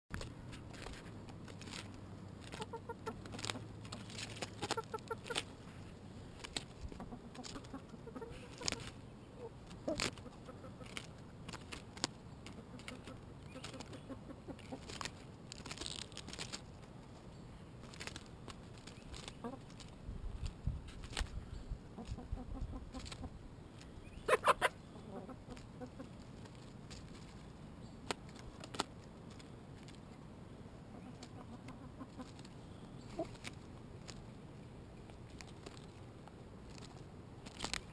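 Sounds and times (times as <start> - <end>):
beaks tapping and tearing leaves: 0.1 - 21.4, 22.0 - 24.5, 25.3 - 30.2, 31.0 - 37.9
chickens clucking: 2.4 - 5.9, 6.5 - 15.2, 18.1 - 20.5, 21.9 - 27.4, 30.8 - 34.2.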